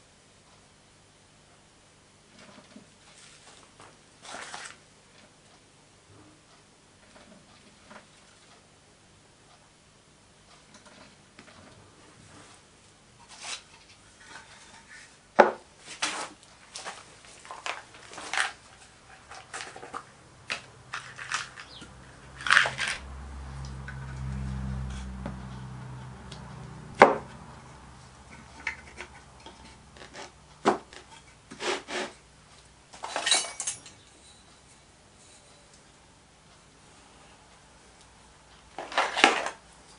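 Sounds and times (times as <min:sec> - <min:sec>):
small metal clinks: 0:33.1 - 0:35.7.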